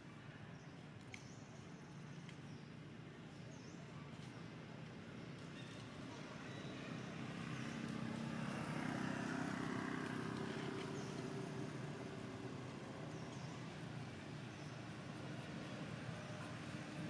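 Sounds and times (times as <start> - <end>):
distant vehicle engine hum: 5.6 - 17.0.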